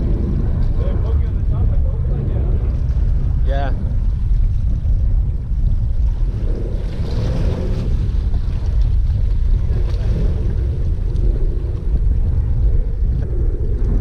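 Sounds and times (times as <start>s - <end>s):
sea waves against rocks: 0.0s - 14.0s
wind buffeting microphone: 0.0s - 14.0s.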